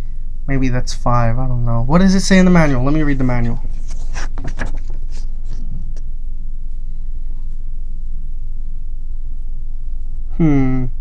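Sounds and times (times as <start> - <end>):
paper rustling: 2.7 - 5.8.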